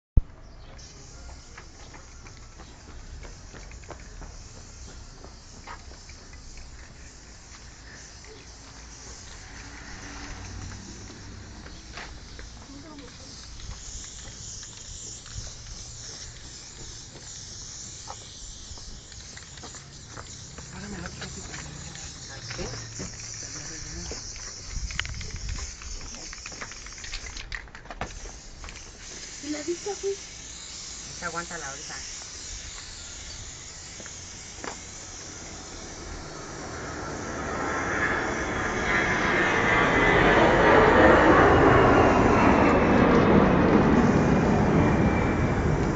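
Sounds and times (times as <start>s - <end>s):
spray paint can hissing: 0.5s - 39.8s
vehicle approaching: 1.9s - 14.7s, 34.0s - 45.9s.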